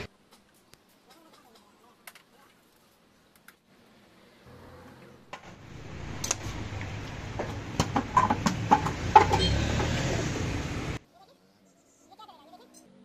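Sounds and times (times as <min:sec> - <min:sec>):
workshop noise: 0:00.0 - 0:01.6, 0:04.7 - 0:11.0
hammer knocking on metal: 0:07.4 - 0:10.0.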